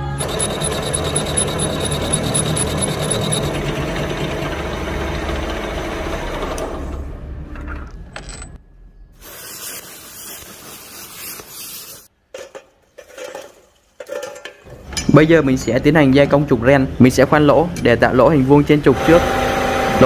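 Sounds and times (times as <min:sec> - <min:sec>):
metal lathe turning steel: 0:00.2 - 0:06.8.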